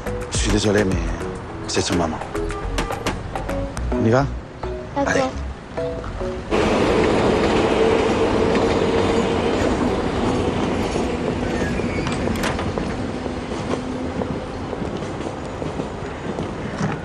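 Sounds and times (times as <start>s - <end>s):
train rumbling on rails: 5.4s - 17.0s
rail clacks: 5.7s - 17.0s
faint wheel squeal: 11.4s - 12.5s.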